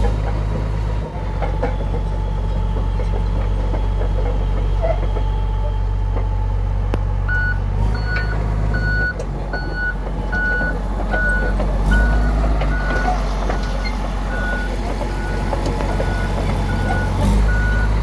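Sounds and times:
bulldozer diesel engine running: 0.0 - 18.0
backup alarm beeping: 7.3 - 18.0.

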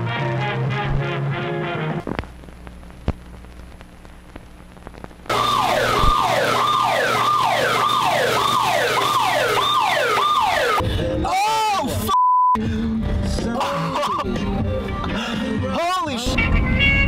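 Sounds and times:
siren-like whoop falling in pitch: 5.3 - 10.8
short steady beep: 12.2 - 12.6.

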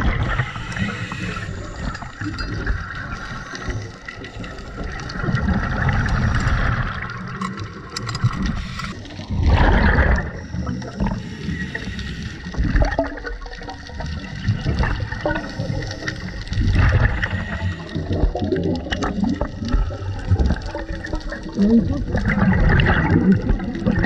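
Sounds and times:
bubbles gurgling underwater: 0.0 - 24.0
scuba regulator breathing: 0.2 - 5.2, 8.4 - 9.2, 10.2 - 12.7, 15.4 - 18.3.

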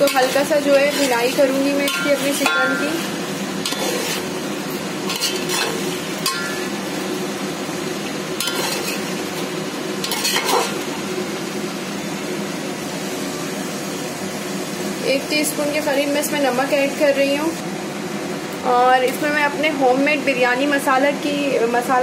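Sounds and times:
metal spatula scraping a pot: 0.0 - 4.4, 5.1 - 6.7, 8.4 - 9.1, 10.0 - 10.9
chicken sizzling in oil: 0.0 - 19.6.

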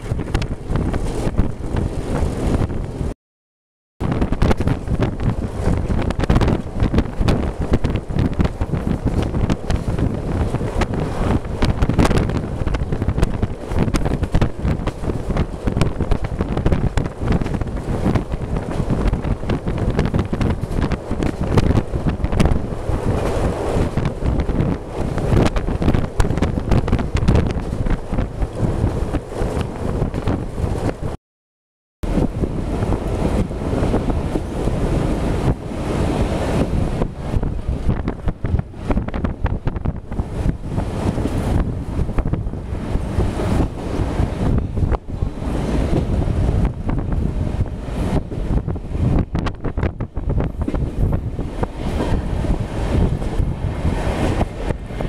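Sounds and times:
train rumble: 0.0 - 3.2, 4.0 - 31.2, 32.0 - 55.0
wind buffeting microphone: 0.0 - 3.2, 4.0 - 31.2, 32.0 - 55.0
train knocks: 49.5 - 55.0.

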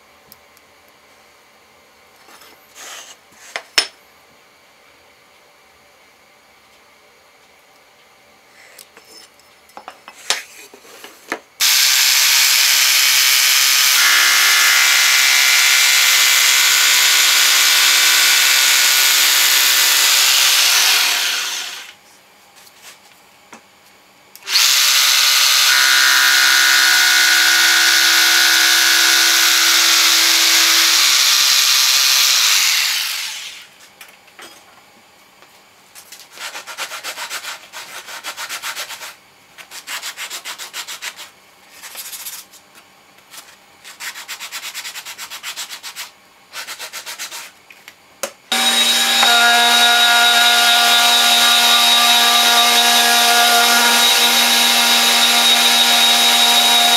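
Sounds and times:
jigsaw cutting wood: 11.6 - 22.0, 24.5 - 33.7, 48.5 - 56.9.

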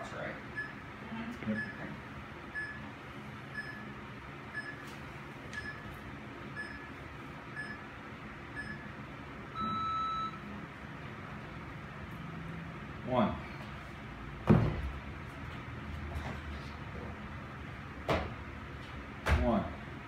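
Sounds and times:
interval timer short high beeps: 0.6 - 0.8, 2.5 - 2.9, 3.5 - 3.9, 4.5 - 4.8, 6.6 - 6.9, 7.6 - 7.8, 8.6 - 8.9, 9.6 - 10.4
longer lower timer beep: 6.6 - 6.9, 7.6 - 7.8, 8.6 - 8.9, 9.5 - 10.5.

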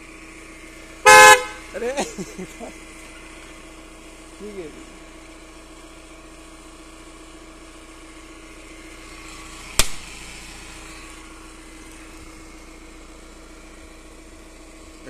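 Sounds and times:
car engine idling: 0.0 - 15.0
coconut cracking on ground: 9.8 - 10.1.

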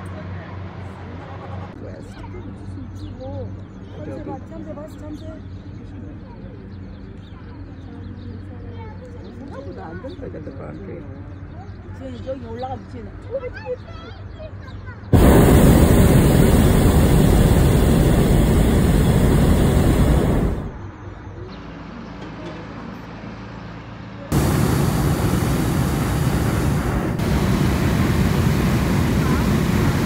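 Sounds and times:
propane burner roaring: 15.1 - 20.8, 24.3 - 30.0.

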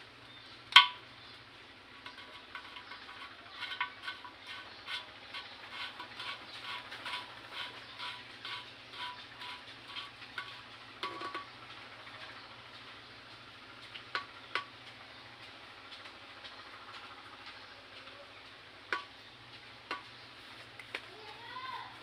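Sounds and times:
plastic pipe fitting squeaking: 2.0 - 11.5.

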